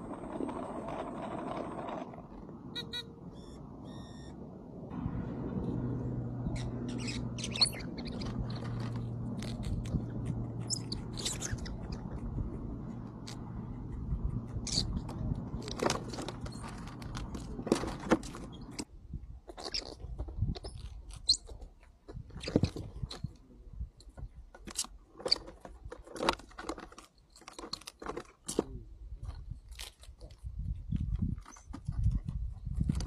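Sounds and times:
squirrels crunching biscuits: 6.8s - 13.5s, 24.6s - 31.6s.

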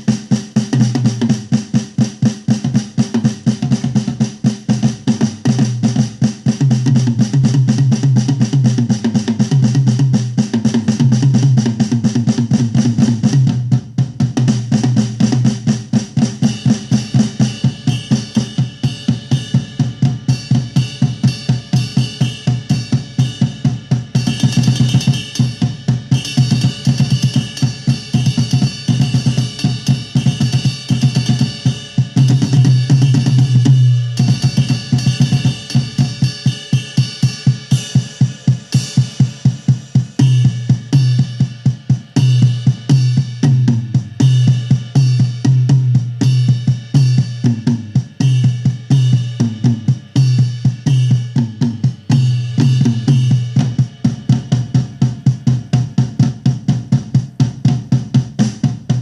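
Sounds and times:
fast programmed drum beat: 0.0s - 59.0s.

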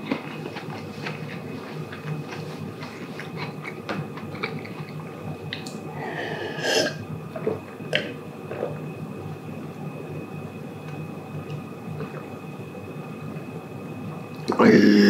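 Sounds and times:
crackers being chewed: 0.0s - 5.8s.

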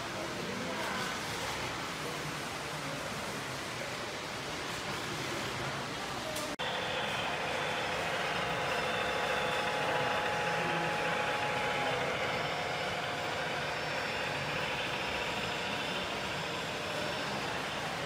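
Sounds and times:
model train rolling: 4.6s - 18.0s.

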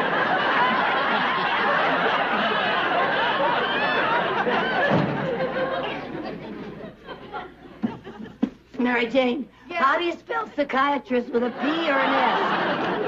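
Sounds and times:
studio audience laughing: 0.0s - 8.6s, 11.3s - 13.0s.

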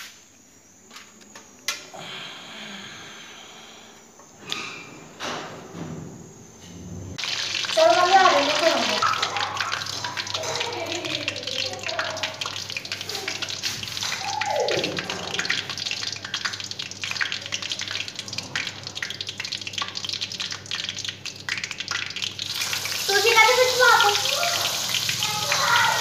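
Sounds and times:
hot oil crackling and popping: 7.2s - 26.0s.

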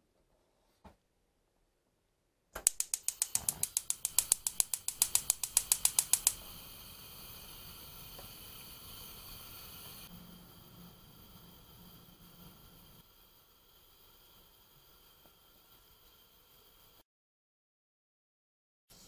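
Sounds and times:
stove igniter clicking: 2.6s - 10.1s
gas burner hissing: 2.6s - 17.0s.

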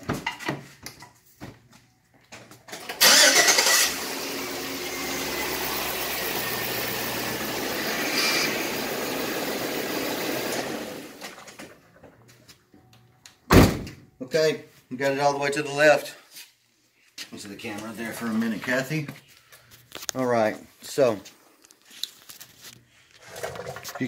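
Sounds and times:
engine cranking and starting: 2.7s - 12.0s, 23.2s - 24.0s
car engine idling: 3.0s - 11.1s.

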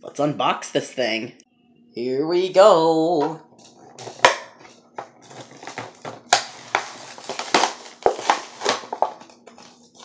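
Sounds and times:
plastic crinkling: 4.0s - 10.0s
cardboard ripping: 5.2s - 10.0s.

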